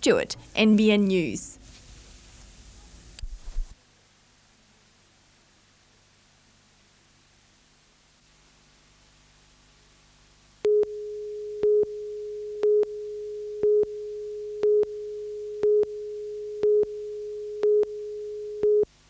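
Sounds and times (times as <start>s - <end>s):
tape hiss and hum: 0.0s - 19.0s
short beeps: 10.7s - 18.9s
steady mid-pitched tone: 10.7s - 18.9s.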